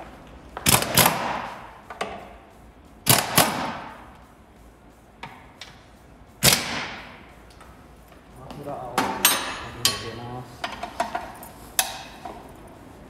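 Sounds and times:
air impact wrench bursts: 0.6s - 1.8s, 3.0s - 4.0s, 6.4s - 7.2s.

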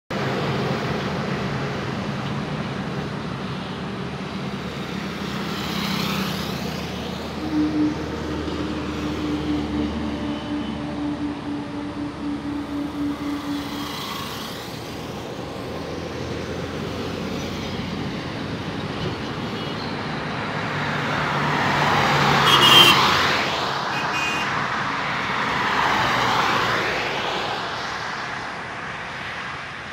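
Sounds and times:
trucks and cars passing: 0.1s - 29.9s
low pulsing drone: 7.2s - 18.2s.

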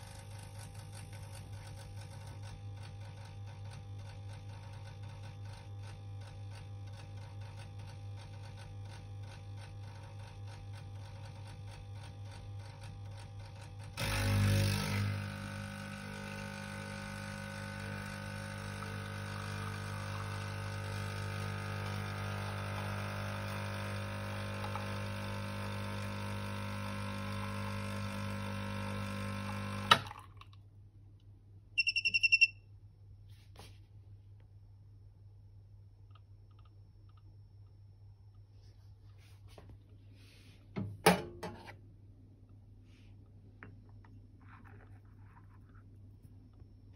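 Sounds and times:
espresso machine pump humming: 0.0s - 30.3s, 43.6s - 46.9s
high electronic beeps: 31.8s - 32.5s.

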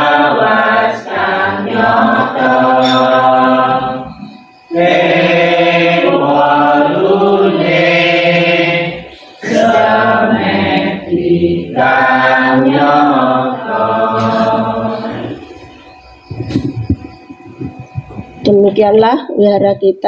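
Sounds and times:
group singing in unison: 0.0s - 15.9s.

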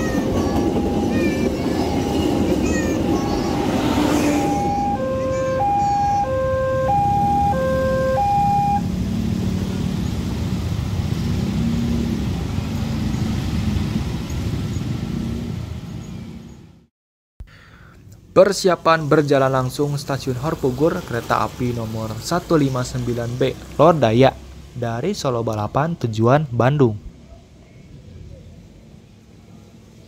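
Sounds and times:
two-tone siren: 0.0s - 8.9s
motorcycle engines humming: 0.0s - 16.6s.

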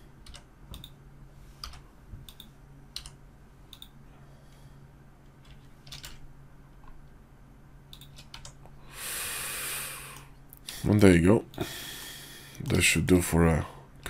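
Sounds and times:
faint low hum: 0.0s - 14.0s
keyboard and mouse clicking: 0.2s - 1.0s, 1.6s - 4.0s, 5.4s - 6.2s, 7.9s - 8.6s.

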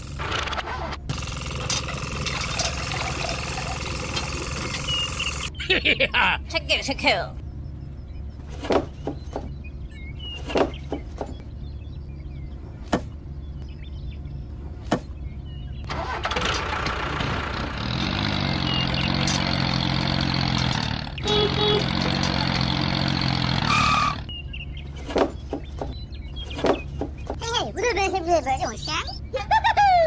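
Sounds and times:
tractor engine starting and running: 0.0s - 5.6s, 15.2s - 27.9s
low hum: 0.0s - 27.4s.

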